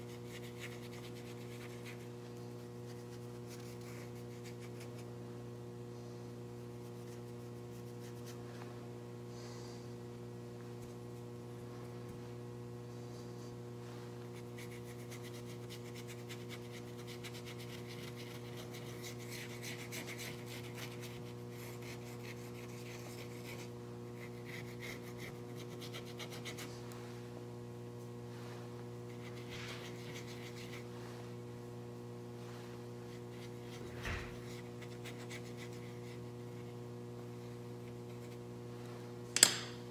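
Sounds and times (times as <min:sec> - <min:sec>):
paintbrush scratching on canvas: 0:00.0 - 0:05.2, 0:06.6 - 0:08.5, 0:14.2 - 0:26.8, 0:28.4 - 0:31.4, 0:32.3 - 0:38.6
steady electrical hum: 0:00.0 - 0:39.9.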